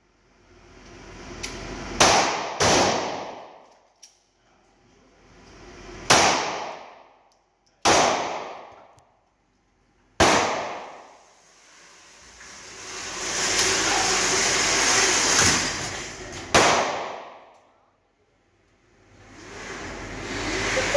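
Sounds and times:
pistol shots: 2.0s - 3.5s, 6.1s - 7.0s, 7.8s - 8.7s, 10.2s - 11.0s, 16.5s - 17.4s.

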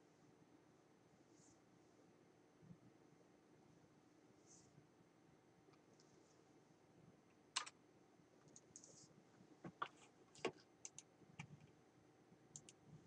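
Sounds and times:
faint steady hum: 0.0s - 13.0s
keyboard and mouse clicks: 7.6s - 7.8s, 8.5s - 9.0s, 9.7s - 11.7s, 12.5s - 12.8s.

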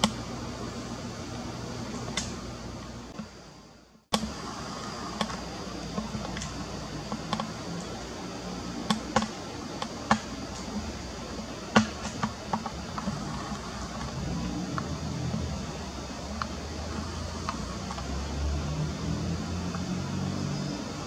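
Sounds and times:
steady background noise: 0.0s - 21.0s
sharp clicks and taps: 8.9s - 10.8s.

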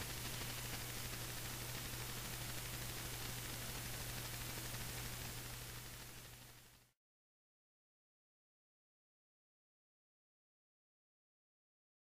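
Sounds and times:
low steady hum: 0.0s - 7.0s
steady hiss: 0.0s - 7.0s.

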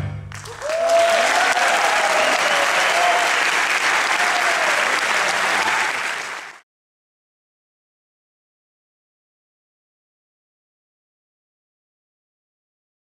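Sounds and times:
audience applauding: 0.3s - 6.6s.

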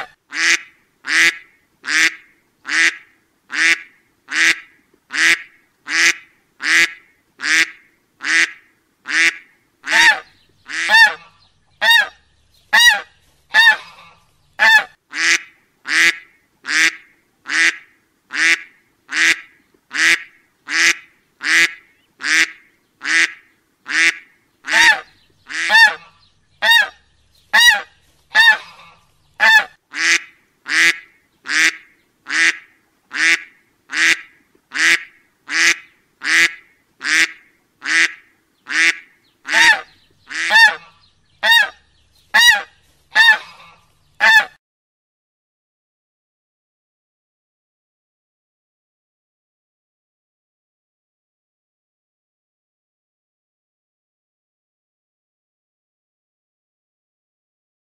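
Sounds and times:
duck quacking: 0.0s - 44.6s.

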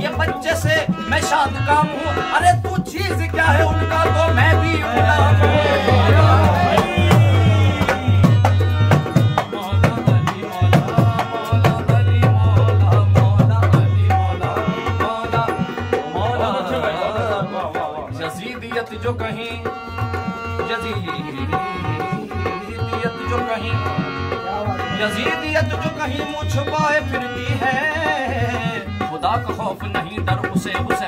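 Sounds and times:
fast hand drum rhythm: 0.0s - 31.0s
harmonium melody: 0.0s - 31.0s.

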